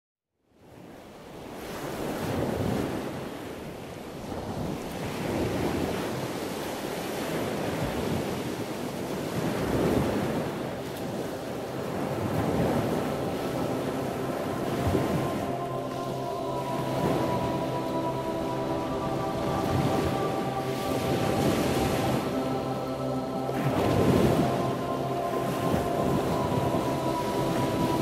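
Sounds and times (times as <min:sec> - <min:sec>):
rushing surf-like noise: 0:09.5 - 0:28.0.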